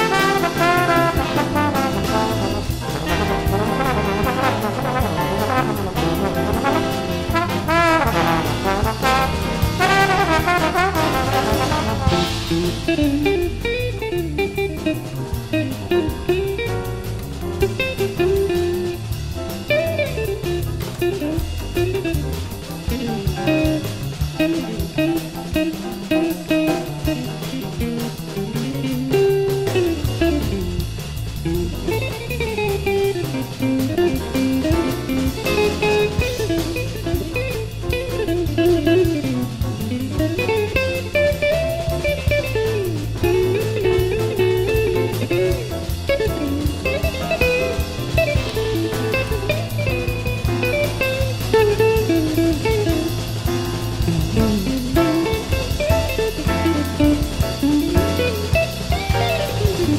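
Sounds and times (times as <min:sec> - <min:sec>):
big band jazz: 0:00.0 - 0:59.9
guitar solo: 0:54.0 - 0:59.9.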